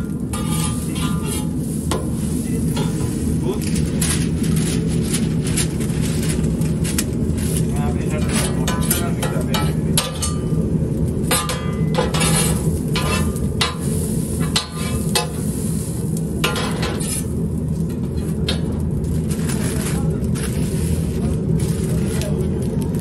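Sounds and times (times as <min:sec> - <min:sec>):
steady low hum: 0:00.0 - 0:23.0
knife scraping on steel griddle: 0:00.3 - 0:03.2, 0:11.3 - 0:15.5, 0:16.4 - 0:17.3.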